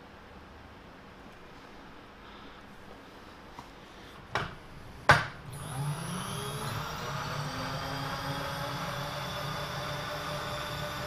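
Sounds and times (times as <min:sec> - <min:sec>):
machine motor humming: 0:05.4 - 0:11.0.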